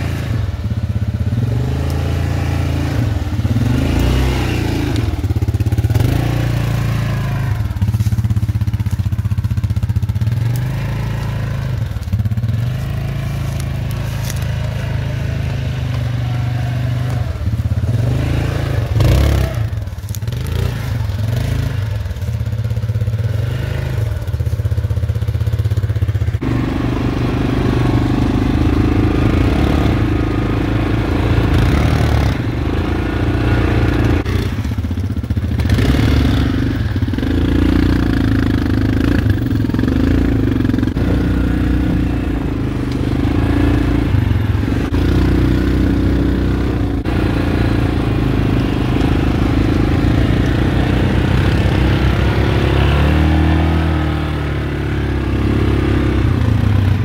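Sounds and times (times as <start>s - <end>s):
quad bike engine running: 0.0s - 57.0s
branches scraping and crackling: 3.2s - 26.4s.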